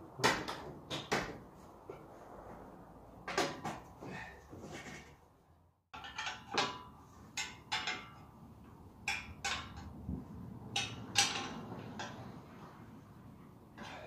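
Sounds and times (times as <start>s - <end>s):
wrench clinking and scraping on metal: 6.0s - 8.4s, 9.0s - 10.0s, 10.7s - 12.3s.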